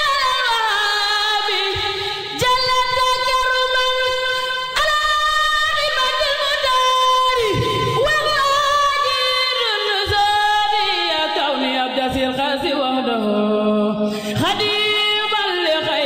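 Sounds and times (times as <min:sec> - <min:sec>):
woman singing devotional song: 0:00.0 - 0:16.0.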